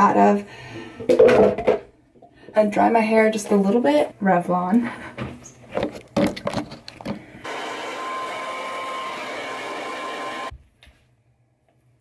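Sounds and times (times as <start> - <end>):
knocks and rustles: 5.2 - 7.3
hair dryer blowing: 7.4 - 10.5.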